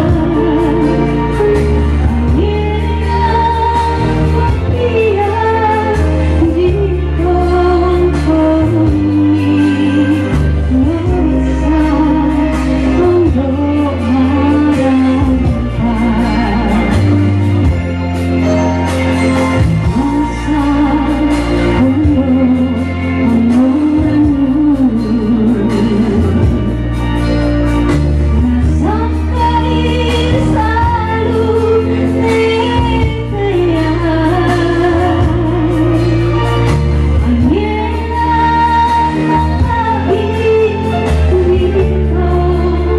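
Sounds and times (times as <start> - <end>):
woman singing slow melody: 0.0 - 18.6, 19.5 - 42.9
instrumental backing: 0.0 - 42.9.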